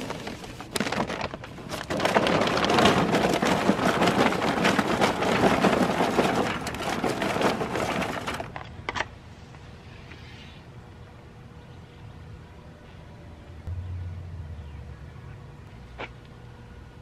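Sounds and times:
charcoal briquettes clattering: 0.0s - 8.7s.

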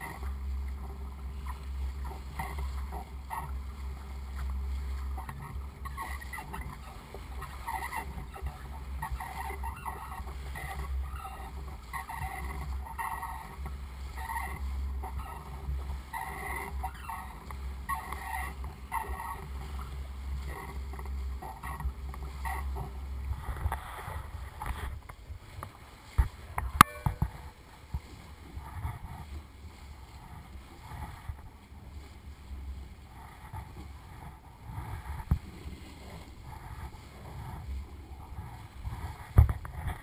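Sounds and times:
low steady hum: 0.0s - 40.0s
water rushing and sloshing: 0.0s - 40.0s.

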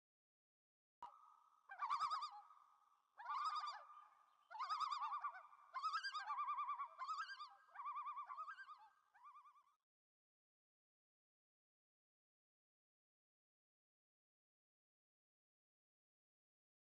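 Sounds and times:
bird warbling call: 1.0s - 2.5s, 3.2s - 9.6s.

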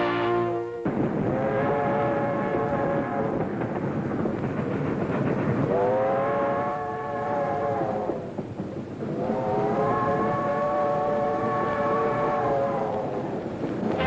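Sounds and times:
train whistle blowing: 0.0s - 3.3s
train rumbling: 0.0s - 14.0s.

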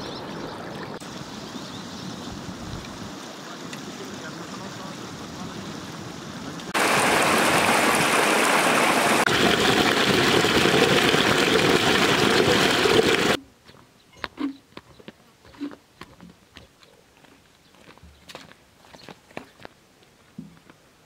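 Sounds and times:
stream rushing: 0.0s - 13.4s
footsteps on dry dirt: 13.6s - 20.8s.

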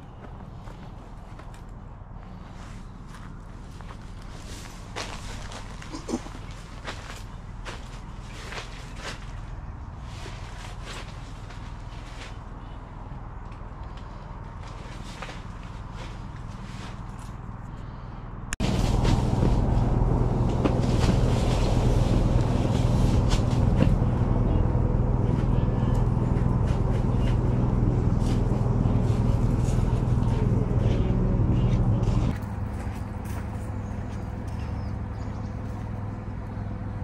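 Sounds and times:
outdoor ambience: 0.0s - 37.0s
steady mechanical hum: 0.0s - 37.0s
rustling: 0.1s - 13.0s, 13.9s - 24.2s.

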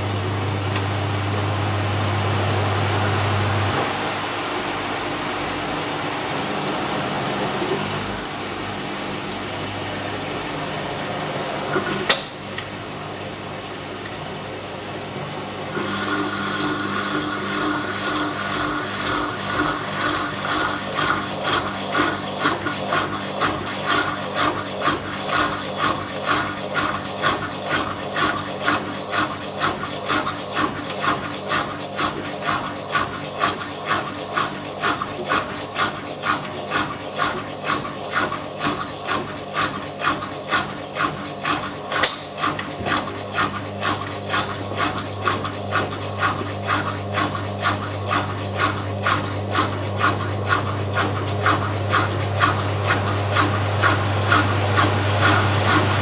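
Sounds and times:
low motor hum: 42.1s - 56.0s.

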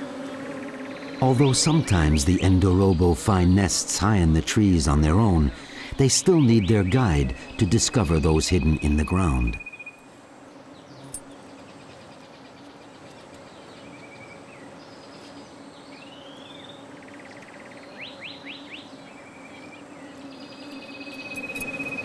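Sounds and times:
birds chirping and whistling: 5.6s - 10.0s
insect-like pulsing trill: 20.4s - 22.0s.

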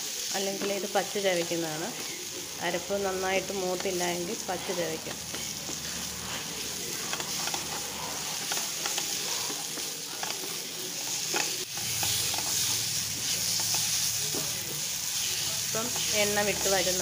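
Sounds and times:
paste sizzling in oil: 0.0s - 17.0s
wooden spatula stirring and scraping: 0.4s - 17.0s
spatula clicking on pan: 7.0s - 12.6s.

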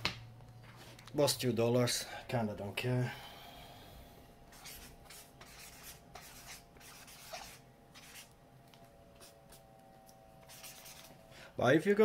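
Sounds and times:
marker scratching on paper: 4.5s - 8.3s, 10.4s - 11.2s.

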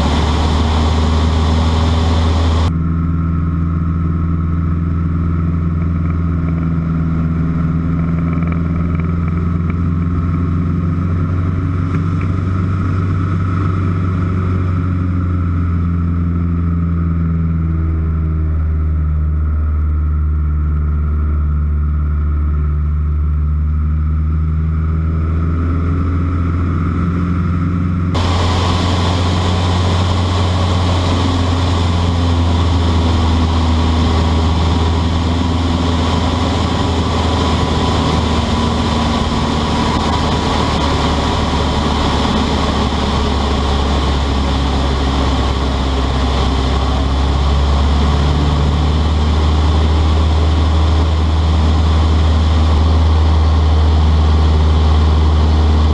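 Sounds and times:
propeller aircraft engine droning: 0.0s - 55.9s
hiss: 28.2s - 33.1s.

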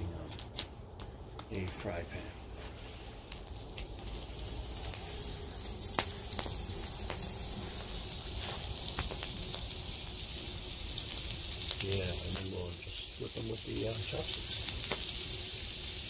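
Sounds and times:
sausage sizzling in a pan: 2.5s - 16.0s
sharp pops: 3.3s - 12.6s, 13.9s - 15.6s.

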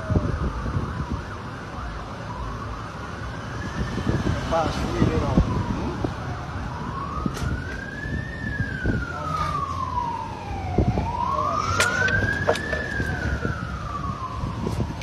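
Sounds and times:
wailing siren: 0.0s - 15.0s.

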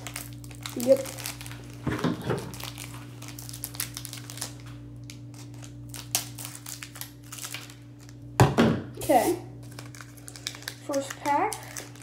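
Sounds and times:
foil wrapper crinkling: 0.0s - 8.2s, 9.1s - 12.0s.

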